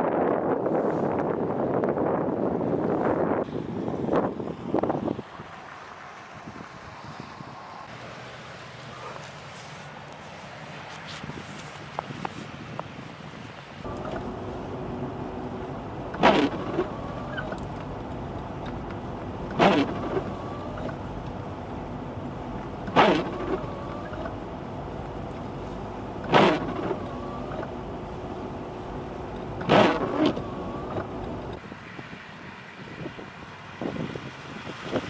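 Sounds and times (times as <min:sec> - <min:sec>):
car running inside cabin: 0:13.8 - 0:31.7
windshield wipers squeaking: 0:13.9 - 0:31.6.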